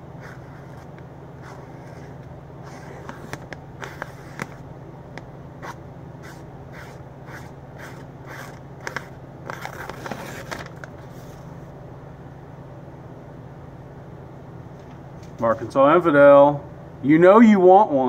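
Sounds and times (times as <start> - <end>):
knife slicing paper: 5.6 - 10.6.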